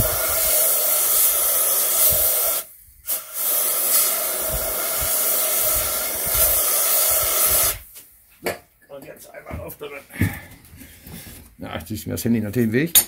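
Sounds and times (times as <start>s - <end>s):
aerosol spray hissing: 0.0s - 8.0s.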